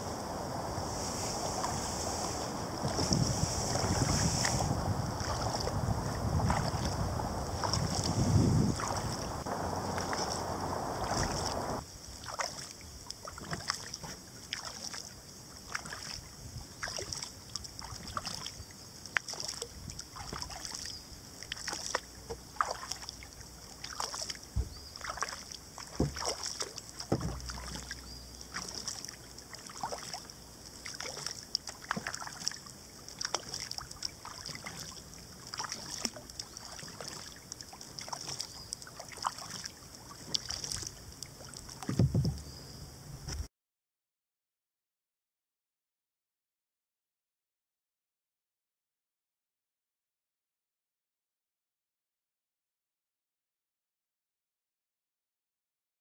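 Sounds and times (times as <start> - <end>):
wind on microphone: 0.0 - 11.8, 16.3 - 16.8, 41.8 - 43.5
water dripping and splashing: 0.2 - 16.2, 16.8 - 42.5.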